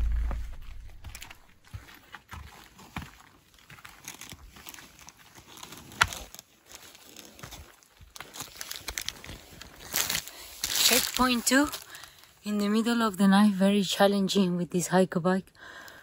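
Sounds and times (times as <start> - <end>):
footsteps on forest floor: 0.0 - 11.8.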